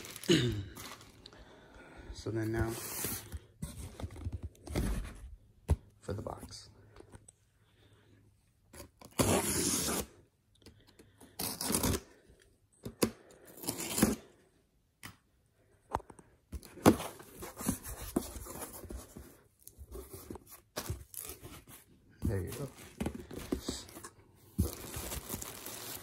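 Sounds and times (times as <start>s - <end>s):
cardboard and tape rustling: 2.5s - 6.6s, 16.6s - 26.0s
box cutter slicing packing tape: 9.1s - 10.1s, 11.4s - 12.0s.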